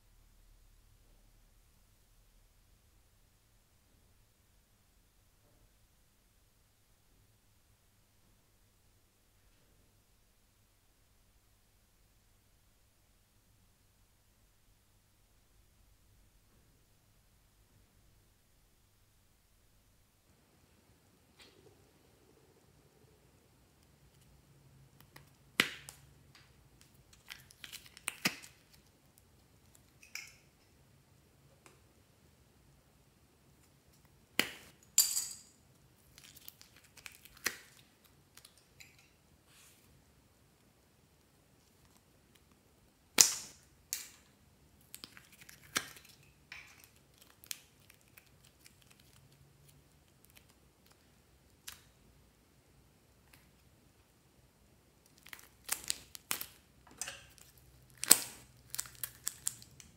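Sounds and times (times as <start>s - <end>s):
clicks and crackles: 24.9s - 30.8s, 36.0s - 39.2s, 43.2s - 52.0s, 55.0s - 59.9s.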